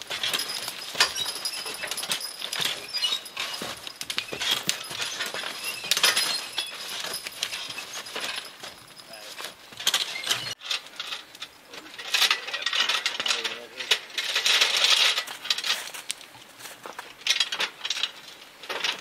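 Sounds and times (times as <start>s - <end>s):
log dragging through brush: 0.0s - 12.6s
harness hardware clinking: 0.0s - 16.2s.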